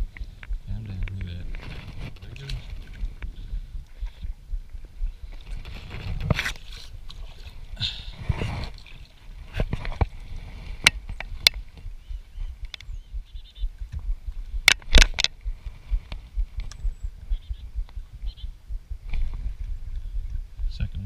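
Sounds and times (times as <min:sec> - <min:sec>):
low wind rumble: 0:00.0 - 0:21.0
rustling: 0:00.1 - 0:03.3, 0:05.2 - 0:11.9.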